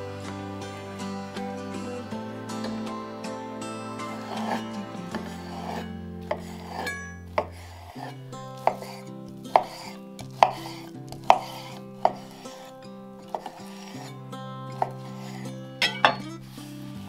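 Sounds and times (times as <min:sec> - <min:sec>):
soft background music: 0:00.0 - 0:17.0
knife chopping on cutting board: 0:08.7 - 0:09.0, 0:09.6 - 0:12.4.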